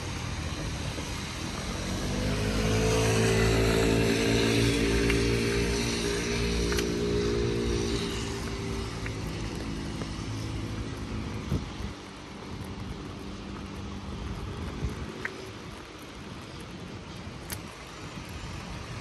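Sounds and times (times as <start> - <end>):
engine running low hum: 0.0 - 19.0
street noise: 0.0 - 19.0.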